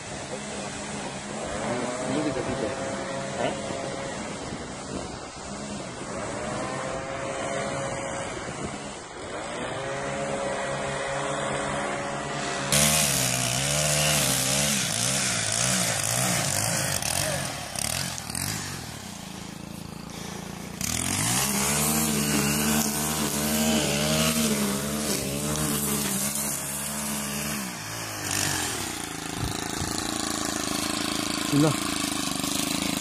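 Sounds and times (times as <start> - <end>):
petrol strimmer engine: 0.0 - 33.0.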